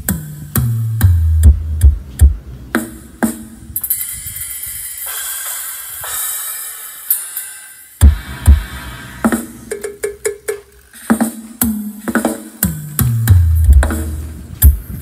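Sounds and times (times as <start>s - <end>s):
deep bass kicks: 0.6s - 2.4s, 8.0s - 8.8s, 13.1s - 14.8s
high hissing sweep: 3.5s - 10.0s
electronic dance music: 5.1s - 12.7s.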